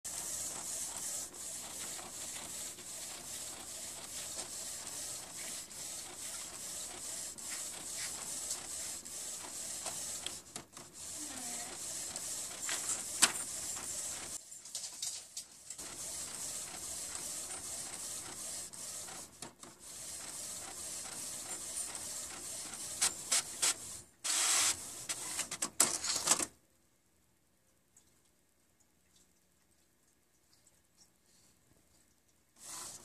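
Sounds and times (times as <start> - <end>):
printer whirring and clicking: 0.1 - 14.5, 15.8 - 26.5, 32.6 - 33.0.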